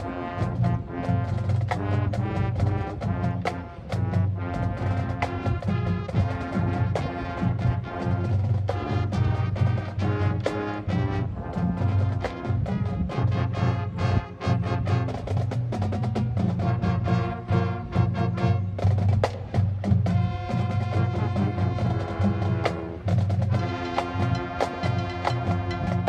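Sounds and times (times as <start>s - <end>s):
brass chords: 0.0s - 26.0s
marching band playing: 0.0s - 26.0s
drum and wood block strikes: 22.6s - 26.0s.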